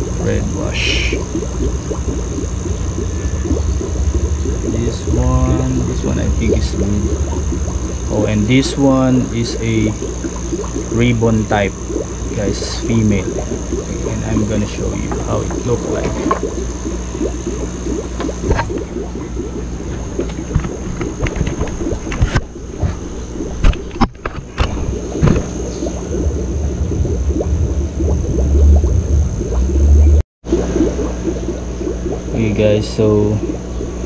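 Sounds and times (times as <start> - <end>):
low rumble: 0.0 - 11.1, 24.5 - 32.3
steady low hum: 0.0 - 34.0
water bubbling and gurgling: 0.0 - 34.0.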